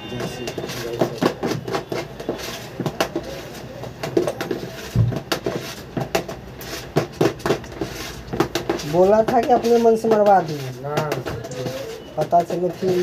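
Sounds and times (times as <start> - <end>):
hands clicking and tapping decorations: 0.0 - 13.0.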